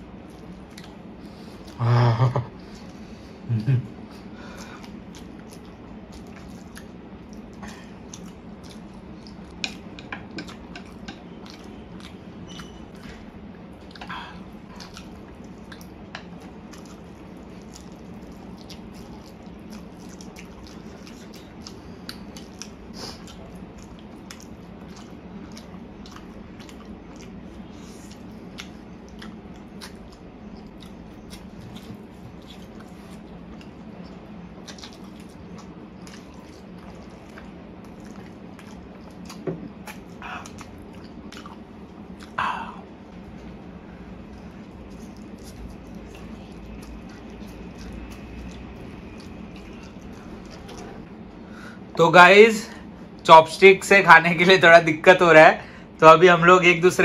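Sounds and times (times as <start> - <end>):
chewing and slurping noodles: 4.8 - 42.4, 43.5 - 51.2.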